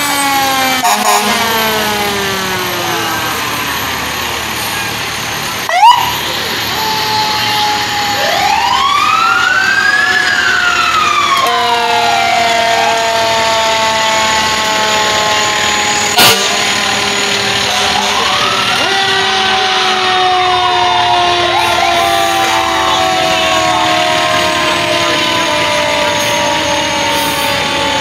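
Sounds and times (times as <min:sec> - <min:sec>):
long horn tones: 0:00.0 - 0:01.9, 0:11.3 - 0:16.7
fire engine siren winding: 0:00.0 - 0:28.0.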